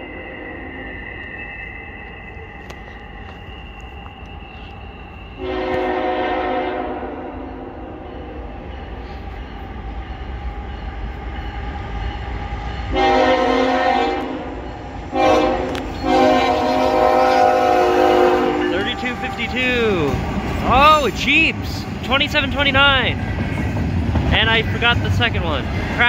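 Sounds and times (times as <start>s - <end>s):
low rumble of train: 0.0s - 26.0s
locomotive air horn: 5.4s - 8.0s, 12.9s - 20.1s.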